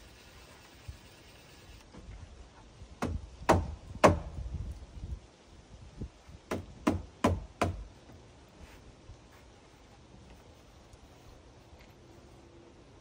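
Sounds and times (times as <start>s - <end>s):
hammer striking wood: 3.0s - 4.4s, 6.5s - 7.8s.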